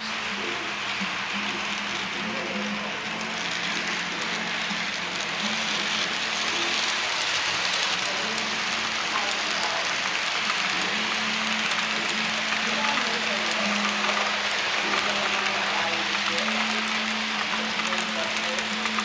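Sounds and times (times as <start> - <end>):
model train wheels rushing: 0.0 - 19.0.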